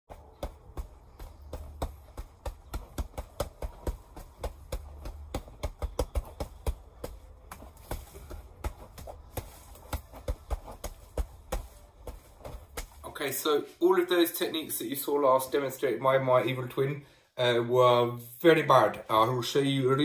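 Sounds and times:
hands slapping strike pads: 0.1s - 13.0s
steady low rumble: 0.1s - 13.1s.

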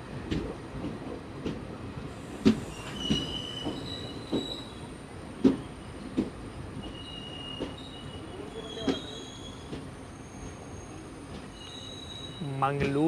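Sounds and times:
train low rumble: 0.0s - 13.0s
train wheels knocking on rail joints: 2.4s - 4.6s, 5.4s - 7.0s
wheel squeals: 2.6s - 4.8s, 6.8s - 12.5s.

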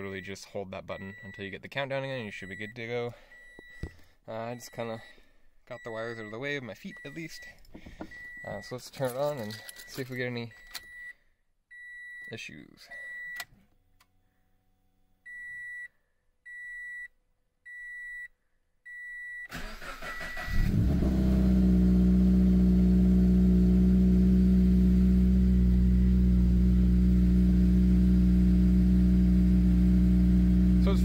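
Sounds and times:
short beeps: 5.8s - 8.8s
car engine cranking and idling: 19.5s - 31.0s.

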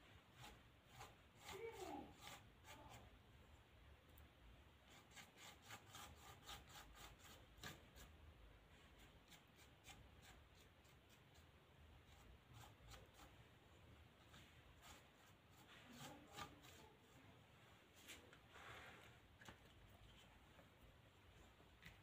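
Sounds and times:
paintbrush rubbing on board: 0.1s - 3.2s, 4.8s - 13.5s, 14.2s - 17.3s.

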